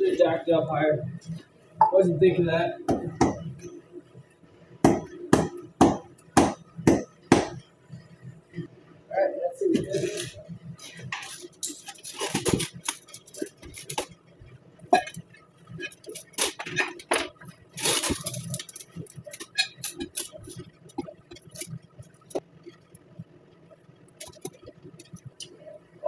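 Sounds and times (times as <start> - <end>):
metal tools clinking and scraping: 9.8 - 14.1, 14.9 - 21.7.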